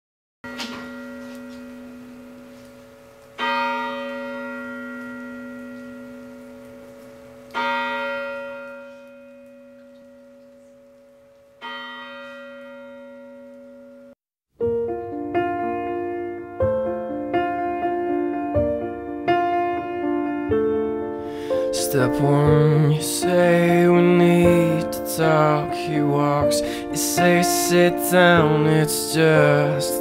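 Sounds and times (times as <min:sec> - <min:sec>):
large bell tolling: 0:00.4 - 0:14.2.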